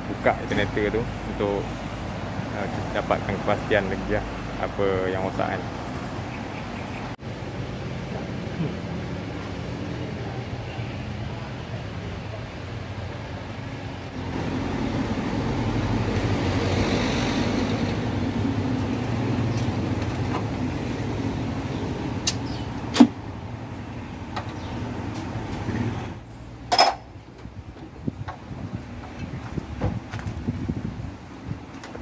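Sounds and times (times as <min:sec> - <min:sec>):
vehicle engine humming: 0:00.0 - 0:32.0
metal clank: 0:26.7 - 0:27.1.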